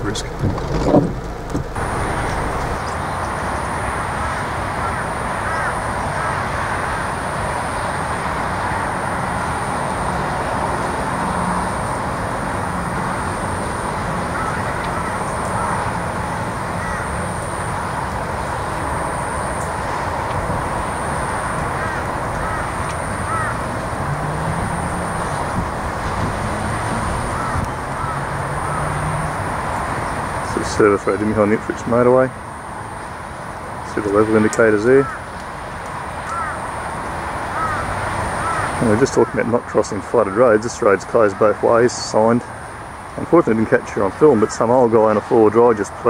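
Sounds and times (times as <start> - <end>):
distant road traffic roar: 0.0 - 46.0
faint short bird calls: 14.2 - 16.0, 16.6 - 17.4, 21.8 - 23.8, 27.2 - 29.0, 35.0 - 35.3, 36.3 - 36.7, 37.6 - 38.8.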